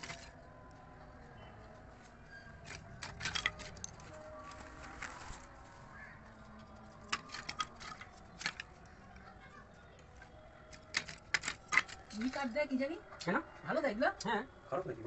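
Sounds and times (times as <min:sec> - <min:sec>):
wooden sticks clacking: 0:00.0 - 0:00.3, 0:02.6 - 0:05.1, 0:07.0 - 0:08.8, 0:10.7 - 0:12.6.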